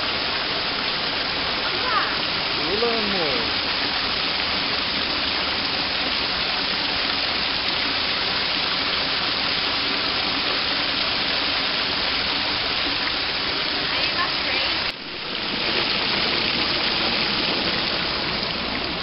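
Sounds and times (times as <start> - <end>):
water rushing over weir: 0.0 - 19.0.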